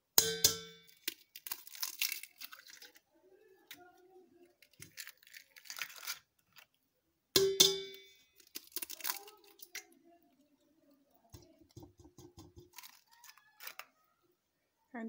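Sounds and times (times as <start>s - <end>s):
egg clanging on metal bowl: 0.2s - 2.8s, 7.4s - 9.9s, 11.3s - 13.8s
eggshell knocks and taps: 11.3s - 13.0s.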